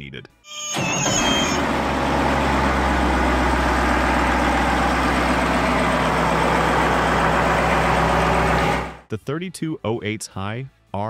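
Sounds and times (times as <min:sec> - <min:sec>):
marine diesel engine idling: 0:00.7 - 0:09.0.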